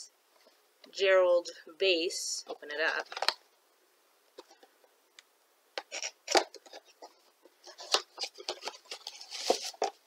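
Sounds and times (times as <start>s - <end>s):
cardboard box rustling and scraping: 6.7s - 10.0s.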